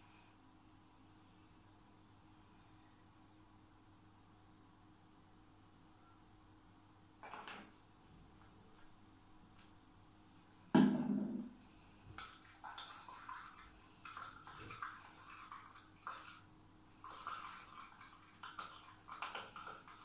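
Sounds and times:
stick stirring in a cup: 0:12.1 - 0:20.0.

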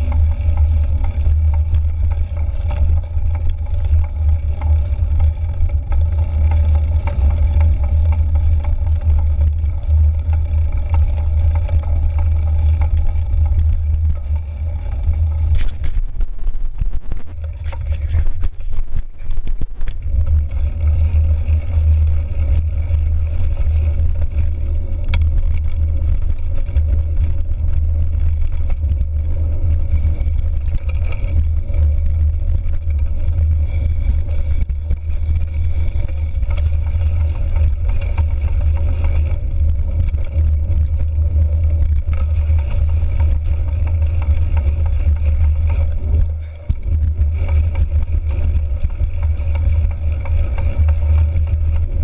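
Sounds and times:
tyre noise on dirt trail: 0:00.0 - 0:52.0
wind on microphone: 0:00.0 - 0:52.0.

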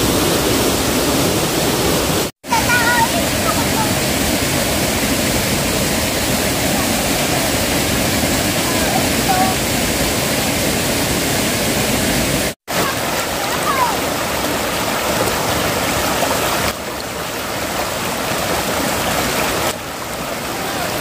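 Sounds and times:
stream water rushing: 0:00.0 - 0:21.0.

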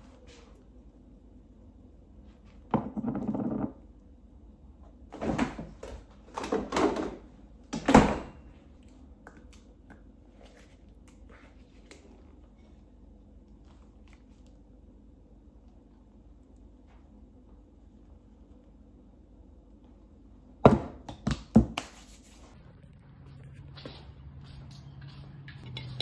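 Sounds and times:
refrigerator door opening and shutting: 0:05.1 - 0:08.4.

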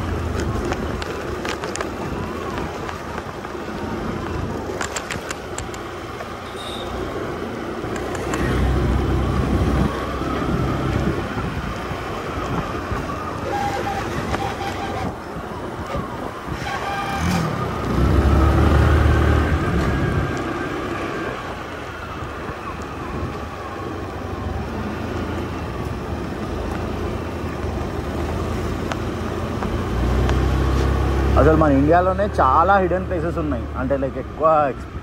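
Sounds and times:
wind rushing over microphone: 0:08.0 - 0:30.6.

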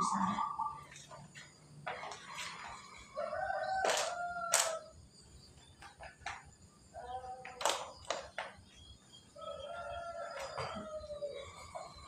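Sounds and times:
rooster crowing: 0:01.9 - 0:05.0, 0:09.3 - 0:12.0.

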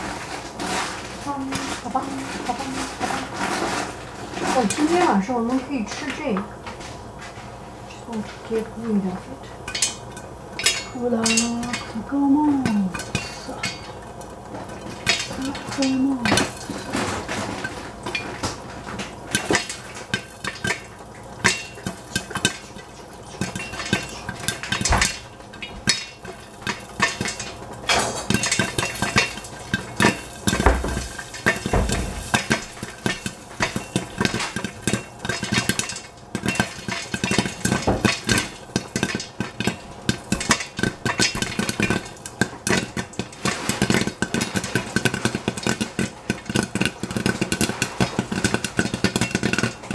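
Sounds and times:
popcorn popping in a covered pot: 0:00.0 - 0:49.9
dull thumps: 0:30.1 - 0:33.3.

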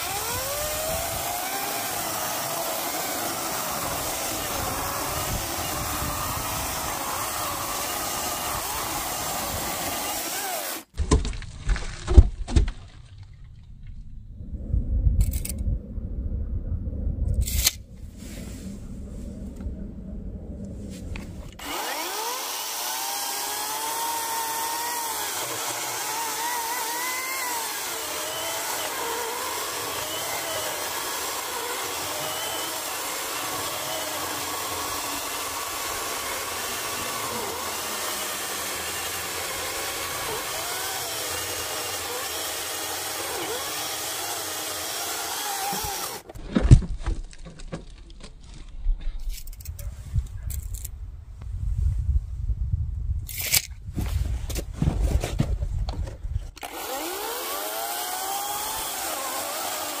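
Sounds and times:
electric chainsaw cutting log: 0:00.0 - 0:11.0, 0:21.5 - 0:46.3, 0:56.6 - 1:00.0
low rumble: 0:12.2 - 0:21.6.

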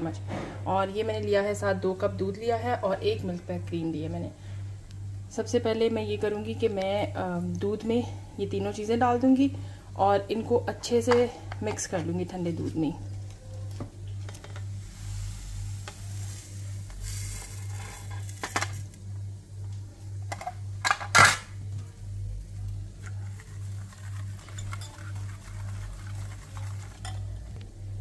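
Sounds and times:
low pulsing hum: 0:00.0 - 0:28.0
whisk stirring in glass bowl: 0:23.0 - 0:27.5.

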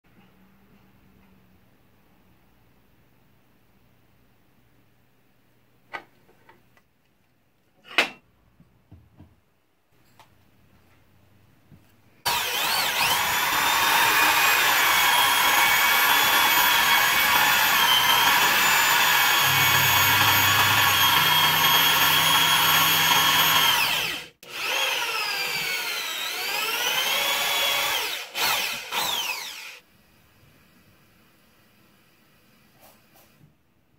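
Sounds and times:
electric drill whining: 0:12.3 - 0:29.8.

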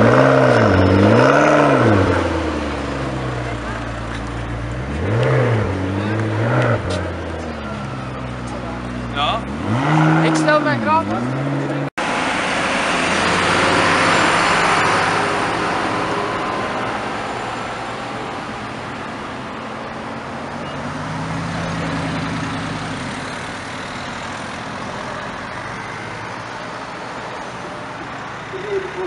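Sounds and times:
car engine at low revs: 0:00.0 - 0:29.0
road traffic passing: 0:00.0 - 0:29.0.

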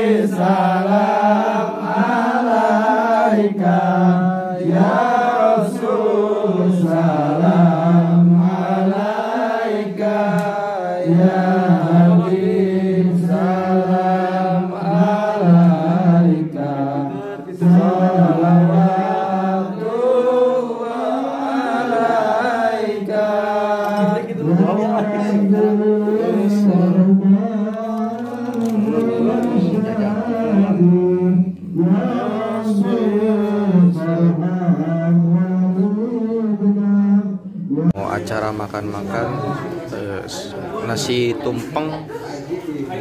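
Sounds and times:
voices chanting devotional verses: 0:00.0 - 0:43.0.

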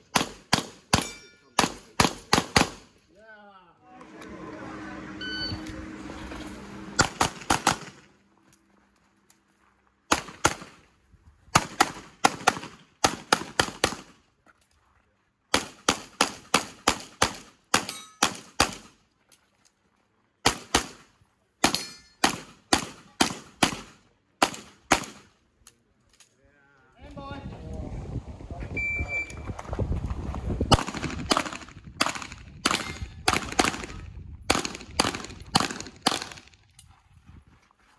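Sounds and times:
handgun shots: 0:07.0 - 0:08.0, 0:34.5 - 0:36.4.

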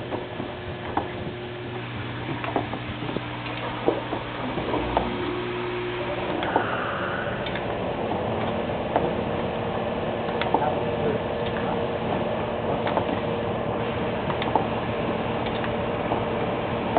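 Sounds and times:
filling machine humming: 0:00.0 - 0:16.9
machine clicks and clacks: 0:07.4 - 0:09.2, 0:10.2 - 0:13.3, 0:14.2 - 0:14.7, 0:15.4 - 0:16.9.

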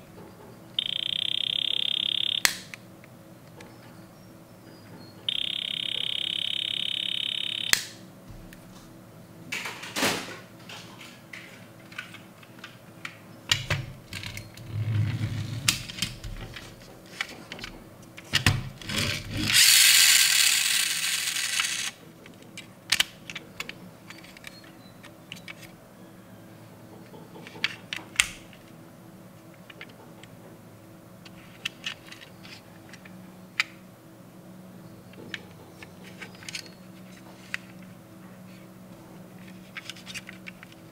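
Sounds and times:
buzzy electronic toy tone: 0:00.8 - 0:02.7, 0:05.3 - 0:08.0, 0:19.5 - 0:21.9.

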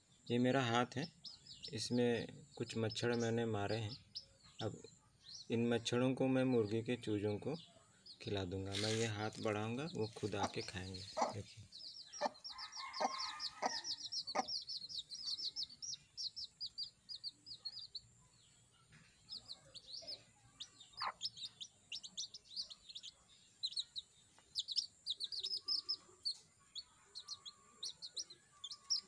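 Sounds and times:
baby chicks peeping: 0:00.0 - 0:29.0
hen clucking: 0:08.7 - 0:16.0, 0:19.3 - 0:24.0, 0:24.6 - 0:29.0.

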